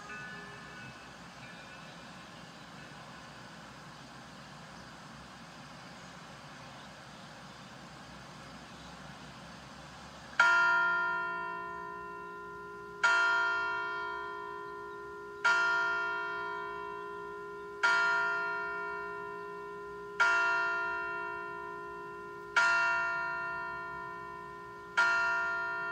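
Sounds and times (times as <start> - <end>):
clock tower bell striking: 0.0 - 3.0, 10.4 - 25.9.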